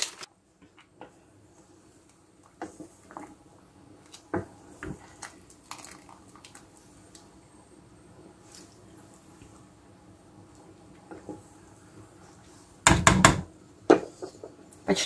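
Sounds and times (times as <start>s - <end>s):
spoon knocking against pot: 12.9s - 14.1s.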